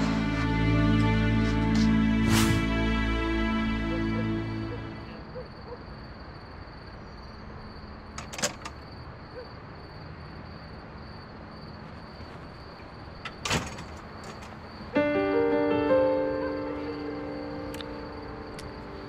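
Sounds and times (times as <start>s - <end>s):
door opening: 8.2s - 8.8s, 13.2s - 14.6s.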